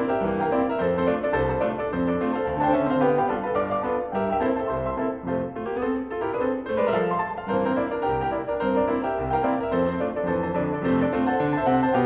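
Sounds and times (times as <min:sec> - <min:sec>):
piano music: 0:00.0 - 0:12.0.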